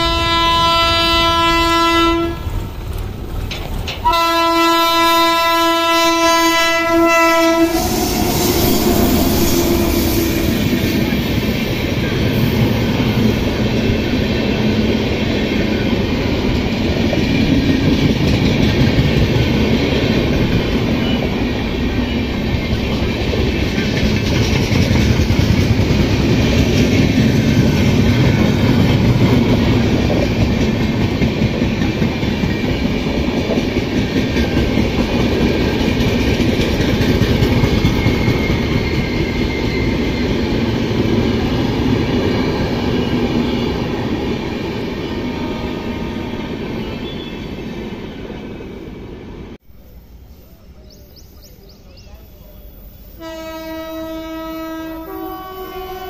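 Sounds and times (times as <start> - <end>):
train wheels rumbling on rails: 0.0 - 49.9.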